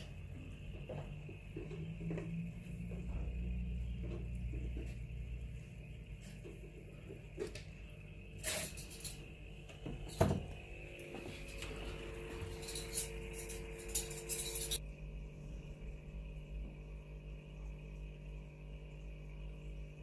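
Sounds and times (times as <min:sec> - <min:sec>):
glass clinks and knocks: 0:12.4 - 0:14.8.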